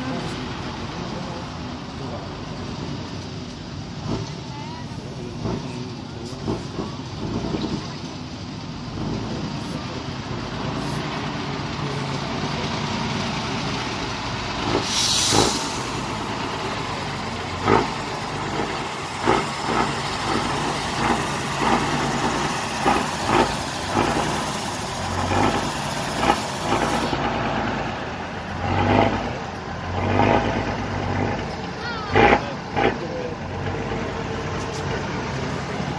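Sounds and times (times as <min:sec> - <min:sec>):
diesel truck engine under load: 0:00.0 - 0:35.9
air hiss: 0:14.8 - 0:16.1.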